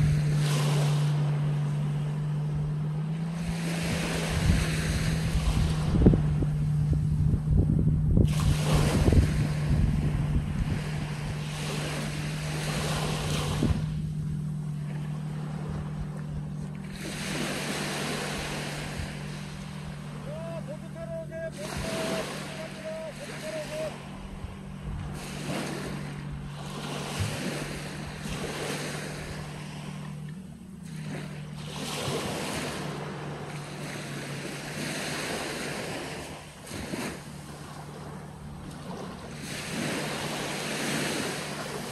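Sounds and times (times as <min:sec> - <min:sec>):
wind buffeting microphone: 0:00.0 - 0:20.2, 0:23.9 - 0:30.3
steady low hum: 0:00.0 - 0:41.9
waves washing on sandy beach: 0:00.0 - 0:41.9.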